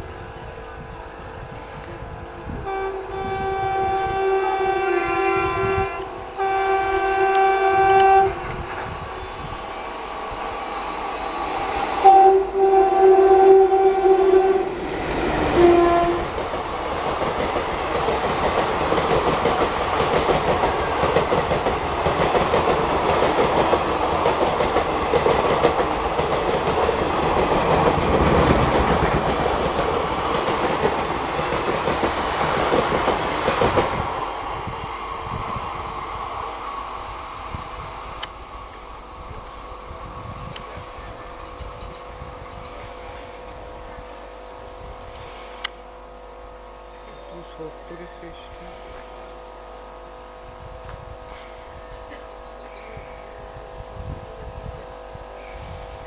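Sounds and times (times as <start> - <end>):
train coaches rumbling past: 0.0 - 56.0
locomotive horn blasts: 1.8 - 9.0, 11.2 - 14.8, 15.4 - 16.4.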